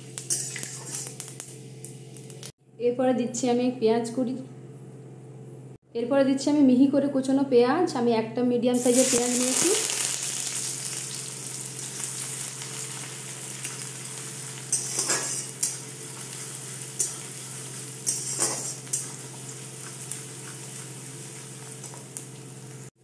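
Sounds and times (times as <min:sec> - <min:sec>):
onion sizzling in oil: 0:00.0 - 0:02.5, 0:08.8 - 0:22.9
metal spatula scraping a pan: 0:14.7 - 0:19.3.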